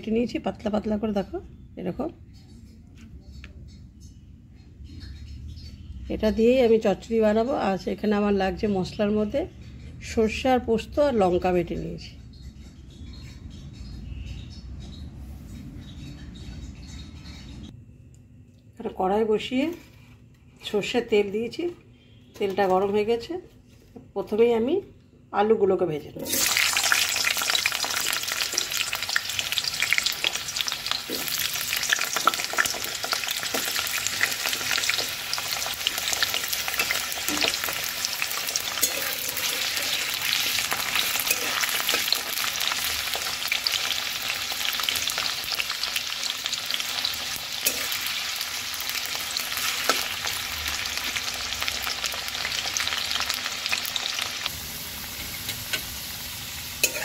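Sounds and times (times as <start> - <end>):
potatoes sizzling in oil: 26.2 - 57.0
metal spatula scraping pan: 38.7 - 42.2, 56.8 - 57.0.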